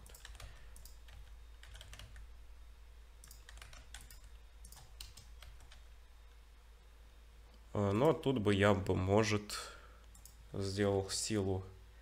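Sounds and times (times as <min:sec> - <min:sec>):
computer keys clicking: 0:00.0 - 0:02.3, 0:03.2 - 0:05.9, 0:10.0 - 0:10.4
steady low hum: 0:00.0 - 0:12.0.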